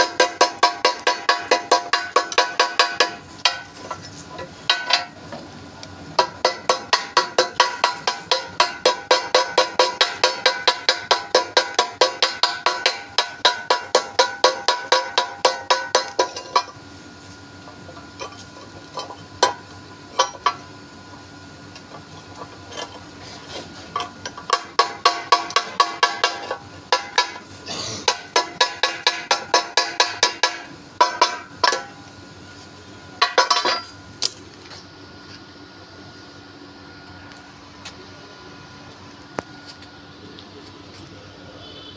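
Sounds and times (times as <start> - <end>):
chipping hammer striking steel: 0.0 - 3.8, 6.2 - 16.7, 24.2 - 27.4, 28.0 - 32.0.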